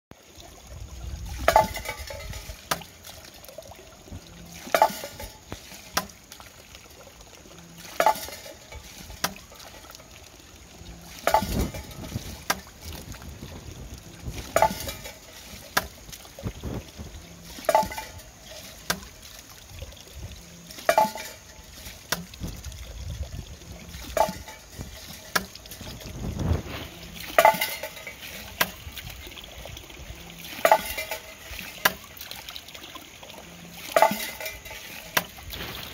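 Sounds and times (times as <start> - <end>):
water pouring and splashing: 0.1 - 35.9
bamboo see-saw hollow knock: 4.6 - 6.2, 8.0 - 9.9, 14.5 - 16.0, 17.6 - 18.2, 30.6 - 32.0.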